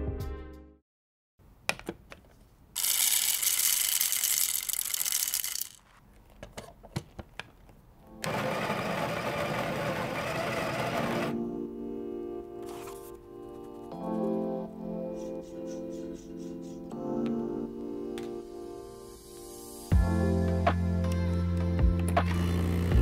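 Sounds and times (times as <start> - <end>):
coffee beans rattling into hopper: 2.8 - 5.8
coffee grinder running: 2.8 - 5.8, 8.2 - 11.4.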